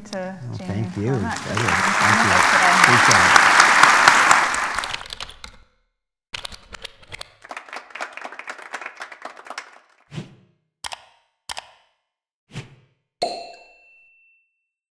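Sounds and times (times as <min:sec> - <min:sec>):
applause: 0:00.6 - 0:05.3, 0:07.1 - 0:10.0
rapid typewriter-like clicks: 0:06.4 - 0:07.4.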